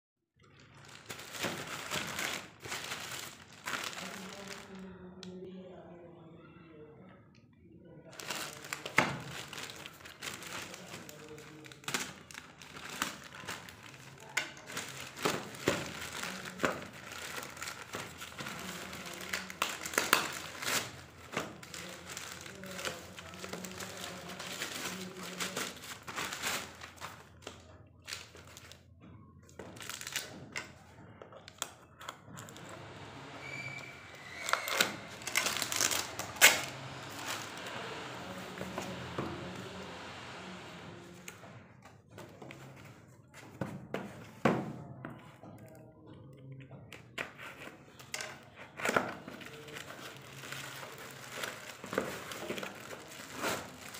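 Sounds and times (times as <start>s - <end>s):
plastic bag crinkling and tearing: 0.5s - 4.9s, 8.1s - 28.9s, 29.5s - 30.8s, 31.4s - 41.4s, 47.8s - 53.9s.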